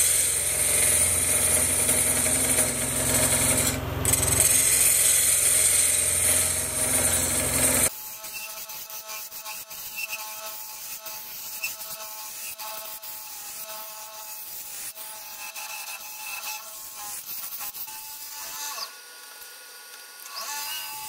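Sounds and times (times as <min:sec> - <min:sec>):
wood lathe humming: 0:00.0 - 0:07.9
chisel hissing on wood: 0:00.0 - 0:17.8.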